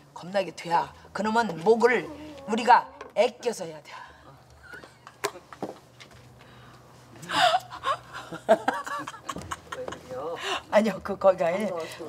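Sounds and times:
woman laughing heartily: 7.2 - 10.4.

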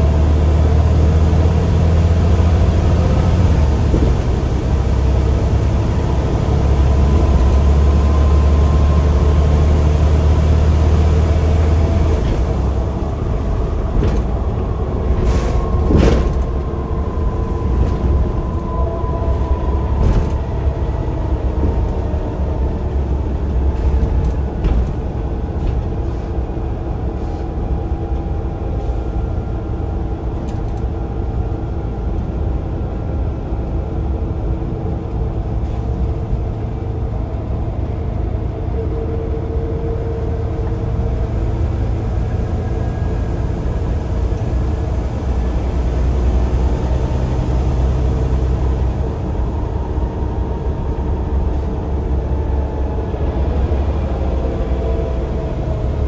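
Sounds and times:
bus engine rumble and whine: 0.0 - 56.0.

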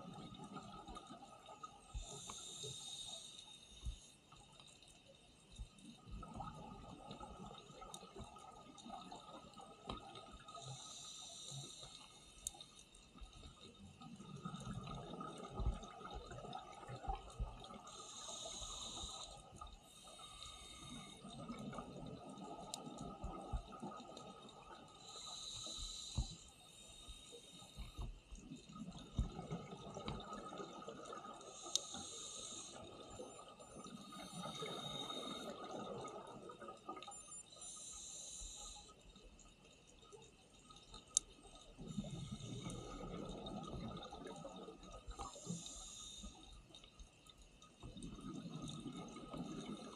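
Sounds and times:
regulator inhale hiss: 1.9 - 4.3, 10.4 - 12.9, 17.7 - 21.8, 24.9 - 28.2, 31.4 - 33.2, 33.9 - 35.7, 37.6 - 39.0, 41.8 - 43.2, 45.1 - 46.8
rumble of exhaled bubbles: 47.9 - 49.9.

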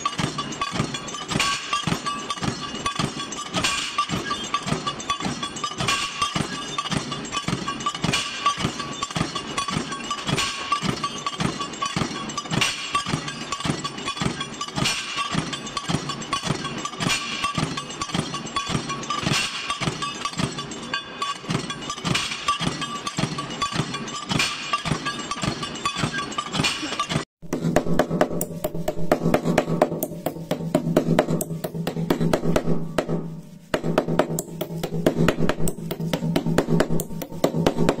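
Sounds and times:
punch press clattering: 0.0 - 27.3.

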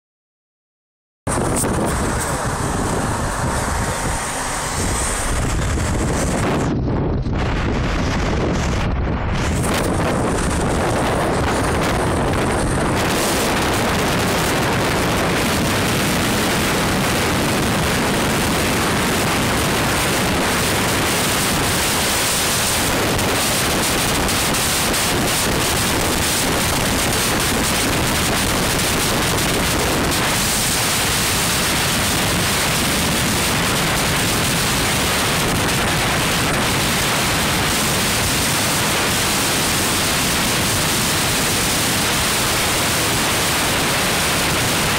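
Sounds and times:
wind and road noise: 1.3 - 44.9.

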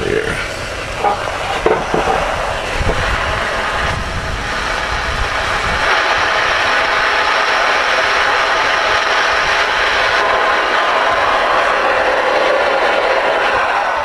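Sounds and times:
radio static hiss: 0.0 - 11.2.

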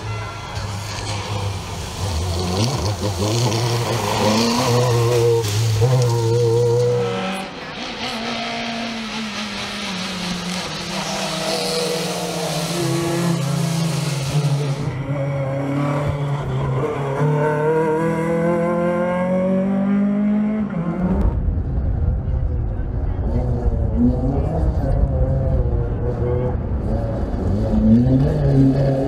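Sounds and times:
tyres hissing on wet tarmac: 0.6 - 14.9
rally car engine revving: 0.6 - 29.0.

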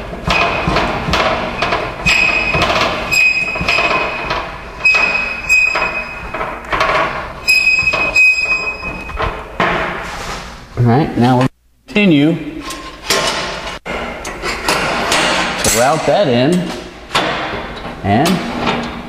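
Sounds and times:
metal rod scraping and squealing: 1.5 - 9.3.

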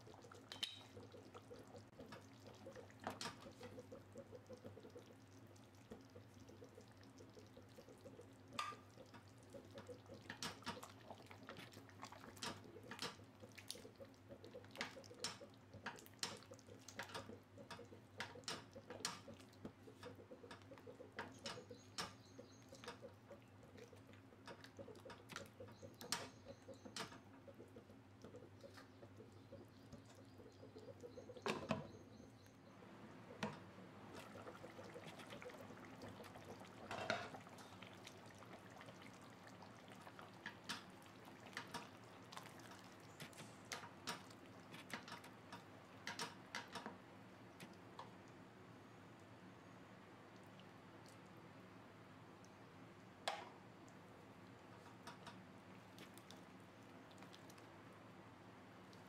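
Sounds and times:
gravy bubbling in a pot: 0.0 - 59.0
spatula stirring: 33.4 - 46.9.

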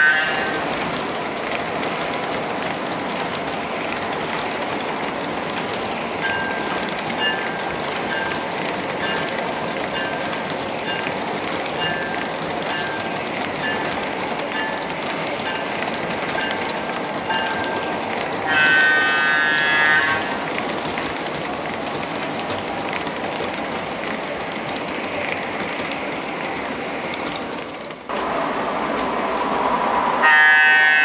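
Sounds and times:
loud train horn: 0.0 - 0.6, 18.4 - 20.4, 30.2 - 31.0
model train cars rolling on track: 0.0 - 31.0.

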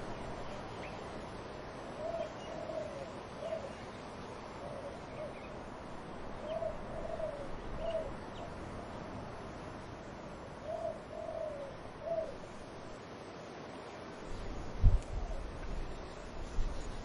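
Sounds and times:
wind in trees: 0.0 - 17.0
dove cooing: 1.9 - 3.8, 4.4 - 5.5, 6.4 - 8.5, 10.6 - 12.4.

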